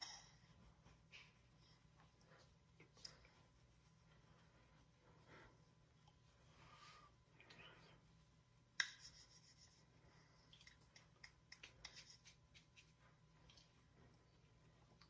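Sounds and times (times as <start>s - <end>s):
hands clicking together: 10.5s - 12.9s
hands brushing faint ticks: 10.5s - 15.0s.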